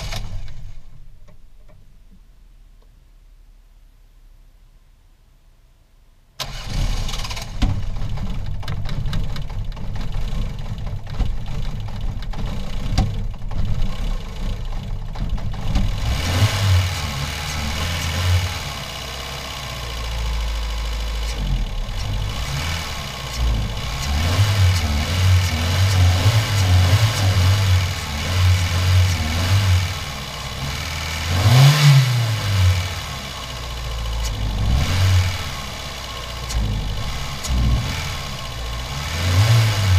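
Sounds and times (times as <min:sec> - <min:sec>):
car engine starting and idling: 0:00.0 - 0:05.0, 0:06.4 - 0:39.9
engine revving: 0:15.6 - 0:39.9.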